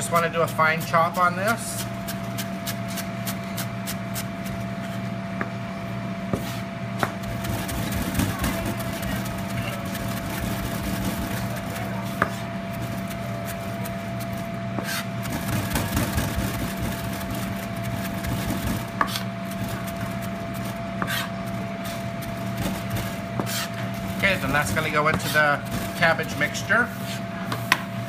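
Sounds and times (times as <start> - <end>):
steady background hum: 0.0 - 28.0
knife chopping on cutting board: 6.3 - 27.9.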